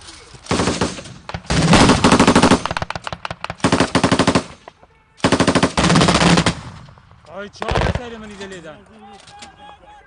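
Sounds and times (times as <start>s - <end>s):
automatic gunfire bursts: 0.5s - 4.6s, 5.2s - 6.7s.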